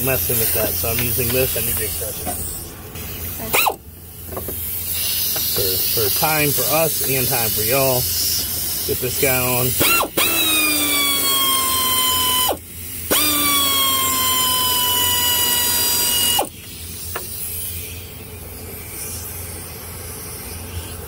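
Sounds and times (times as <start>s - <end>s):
cordless power tool motor whine: 8.4s - 17.3s.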